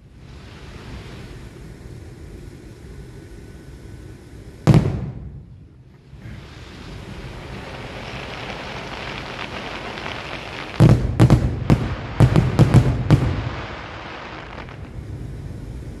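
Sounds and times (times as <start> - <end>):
steady rushing noise: 0.0 - 16.0
fireworks booming: 4.6 - 15.6.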